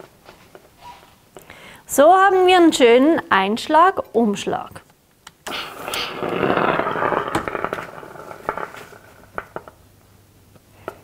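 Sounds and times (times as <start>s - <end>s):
steam iron rushing: 5.5s - 9.2s.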